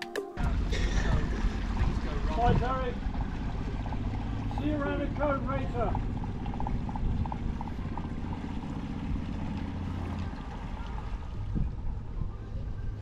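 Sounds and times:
boat engine running at low revs: 0:00.4 - 0:13.0.

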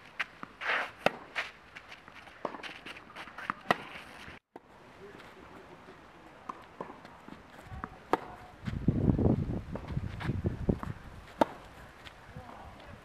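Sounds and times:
footsteps scuffing on clay: 0:00.0 - 0:04.4
tennis balls struck by rackets: 0:00.2 - 0:04.7, 0:06.4 - 0:08.5, 0:10.8 - 0:11.8.

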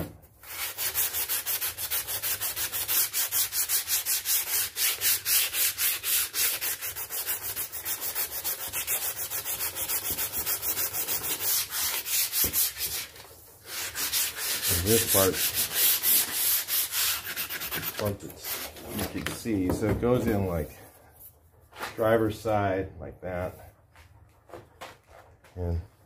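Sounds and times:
sandpaper rubbing on board edge: 0:00.4 - 0:19.2.

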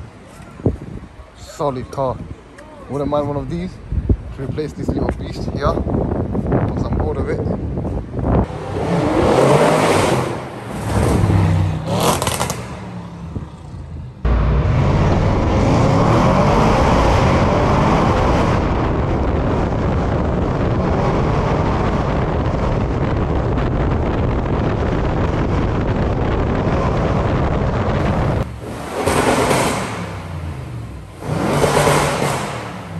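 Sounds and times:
engine and road noise drone: 0:00.0 - 0:32.9
car exhaust roaring past: 0:08.4 - 0:32.9.

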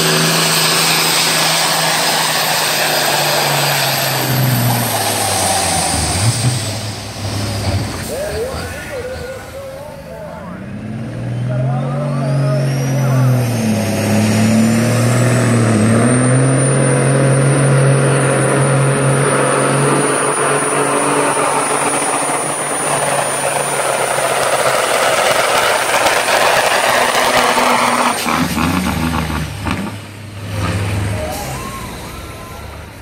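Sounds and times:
truck diesel engine at full power: 0:00.0 - 0:33.0.

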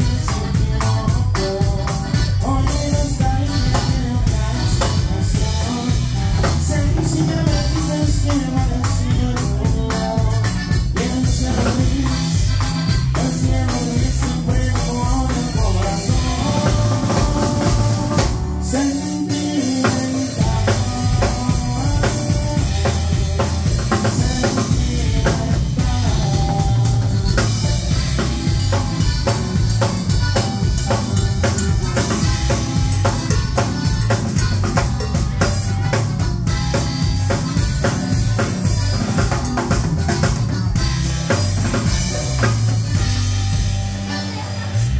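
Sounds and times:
live band with button accordion: 0:00.0 - 0:44.9.

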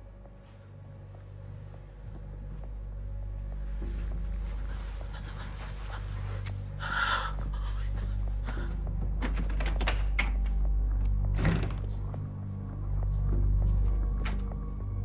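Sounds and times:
low steady drone: 0:00.0 - 0:15.0
door opening clicks: 0:09.2 - 0:10.6, 0:11.3 - 0:12.0.

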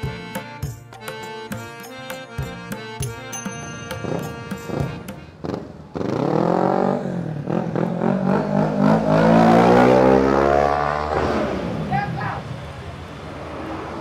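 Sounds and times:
vehicle engine accelerating: 0:04.0 - 0:14.0.

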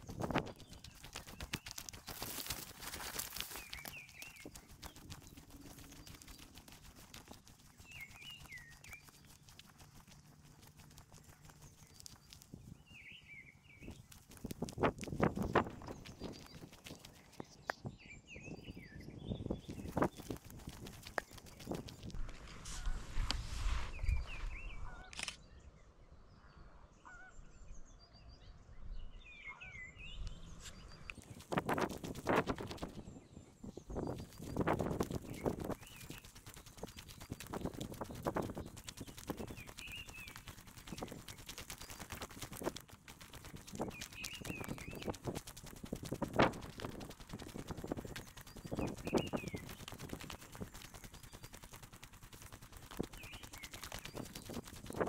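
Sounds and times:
footsteps crunching on path: 0:00.0 - 0:12.7
sharp click: 0:25.0 - 0:25.4
small bird warbling: 0:34.2 - 0:51.8.

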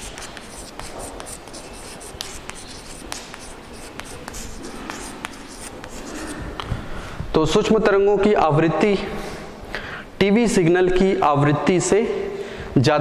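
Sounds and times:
chalk scratching on blackboard: 0:00.0 - 0:06.4
chalk tapping on board: 0:00.0 - 0:06.4.

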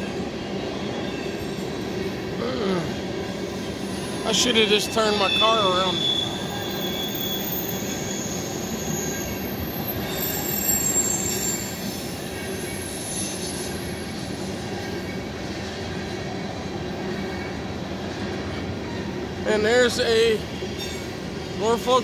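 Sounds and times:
train wheels rumbling on rail: 0:00.0 - 0:22.0
high-pitched wheel squeals: 0:03.6 - 0:14.2.

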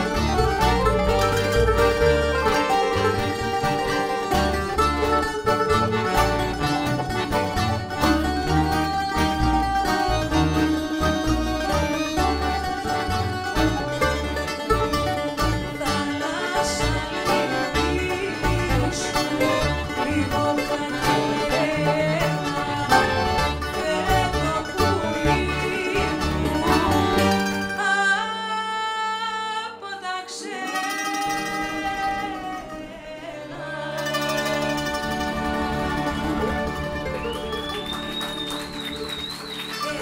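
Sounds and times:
band playing traditional music: 0:00.0 - 0:28.0, 0:30.7 - 0:40.0
woman singing: 0:08.1 - 0:36.6, 0:39.8 - 0:40.0.

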